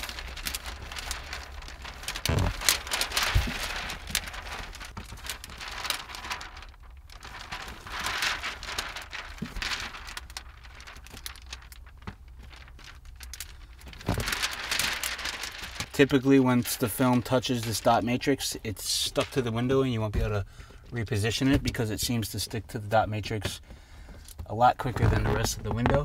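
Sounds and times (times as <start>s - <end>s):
plastic film crinkling: 0.0s - 22.4s, 24.2s - 26.0s
thumps: 2.1s - 3.8s.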